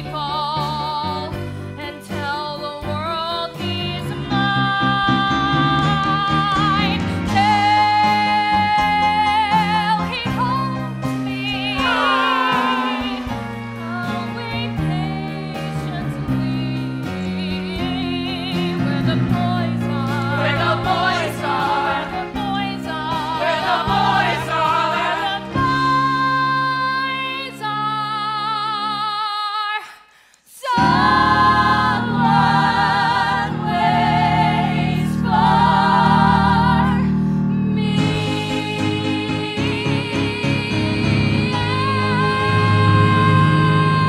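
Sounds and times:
live band playing: 0.0 - 26.6
women singing: 0.0 - 37.2, 37.8 - 44.0.

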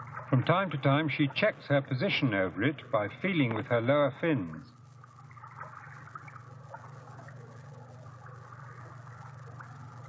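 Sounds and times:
small splashy ticks: 0.0 - 10.0
steady low hum: 0.0 - 10.0
trickle of stream water: 2.9 - 10.0.

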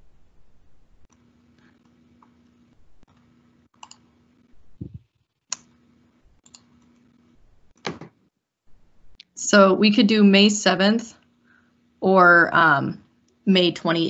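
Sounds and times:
faint steady hum: 0.0 - 14.0
soft low thump: 4.7 - 5.0.

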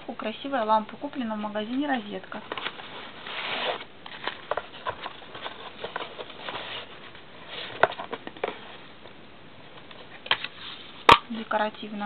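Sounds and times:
cardboard boxes scraping and rustling: 2.5 - 8.8.

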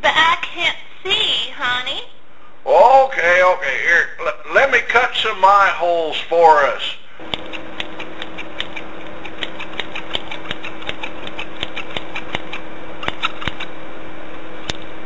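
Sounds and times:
small machine humming: 7.1 - 15.0
sharp clicks: 7.3 - 13.7.

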